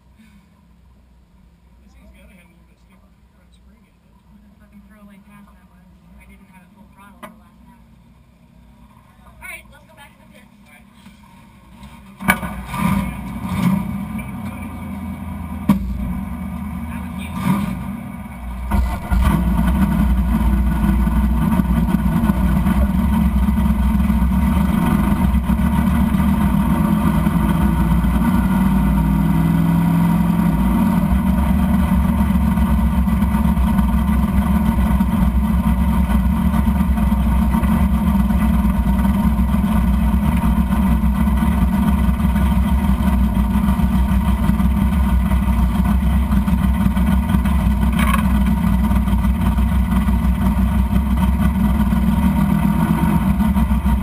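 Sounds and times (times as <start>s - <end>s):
race car engine starting and idling: 0.0s - 54.0s.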